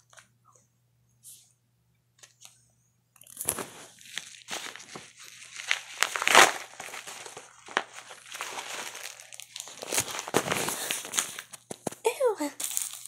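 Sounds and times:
padded envelope crinkling: 3.4s - 13.0s.

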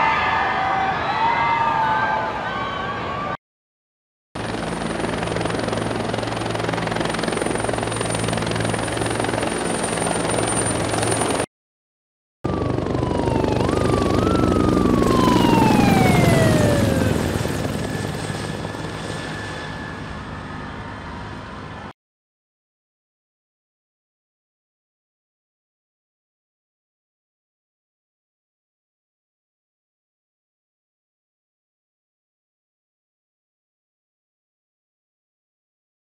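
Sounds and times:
helicopter flying overhead: 4.4s - 11.5s, 12.5s - 21.9s.

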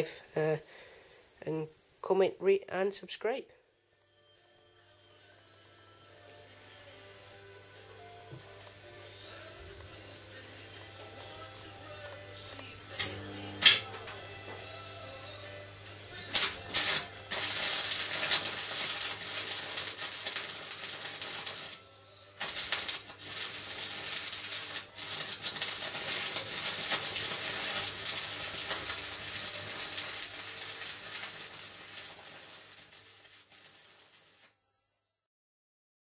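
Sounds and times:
arc welding crackle: 11.8s - 34.5s.

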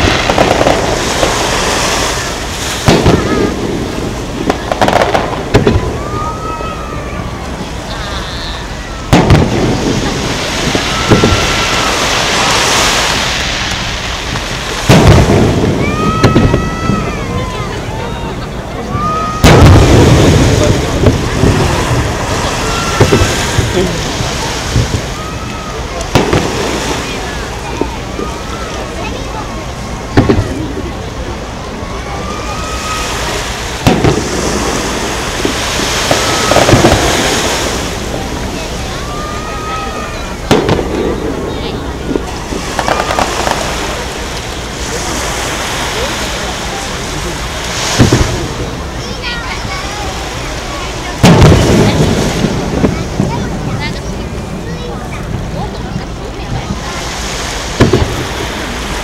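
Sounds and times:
firework bang: 0.0s - 6.6s, 9.1s - 17.6s, 19.0s - 25.2s, 26.0s - 28.7s, 30.1s - 30.8s, 32.8s - 46.2s, 47.5s - 48.7s, 51.1s - 53.9s, 56.7s - 59.0s
firework booms: 0.0s - 17.8s, 18.9s - 29.2s, 30.0s - 31.3s, 32.7s - 49.6s, 50.2s - 59.0s
hissing crackling stars: 0.0s - 59.0s.

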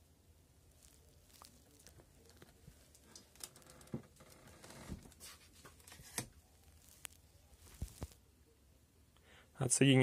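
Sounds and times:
gloved hand rustling: 4.3s - 8.2s.

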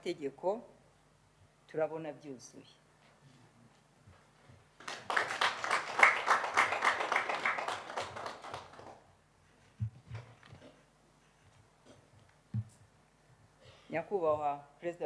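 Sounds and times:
people clapping: 4.8s - 9.1s
soft low thumps: 12.5s - 12.8s.

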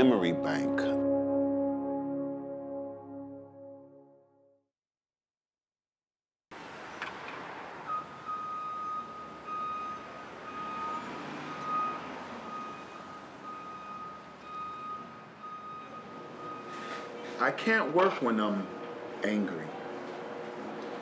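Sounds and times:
city street traffic: 6.5s - 21.0s.

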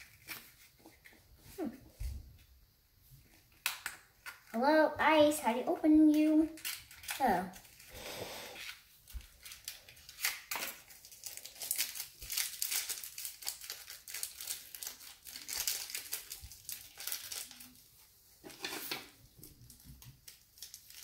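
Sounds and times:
plastic packaging crinkling: 0.0s - 1.7s, 6.0s - 8.0s, 8.6s - 21.0s.

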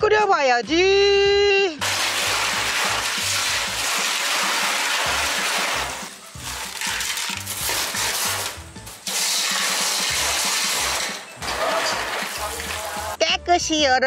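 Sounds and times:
hand stirring clams: 1.8s - 13.2s
tap water running into a pot: 1.8s - 13.2s
background music with low beat: 5.2s - 14.0s.

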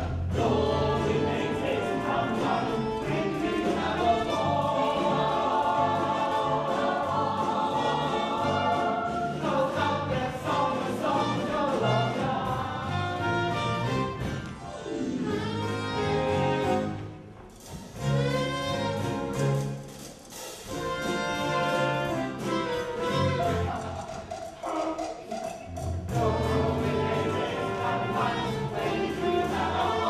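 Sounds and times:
chorus singing: 0.0s - 14.2s, 20.7s - 30.0s
orchestral accompaniment: 0.2s - 30.0s.

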